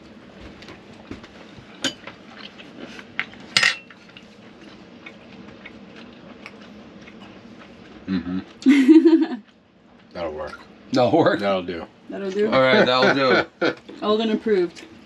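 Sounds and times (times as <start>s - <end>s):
cutlery clinking against plate: 3.6s - 4.0s.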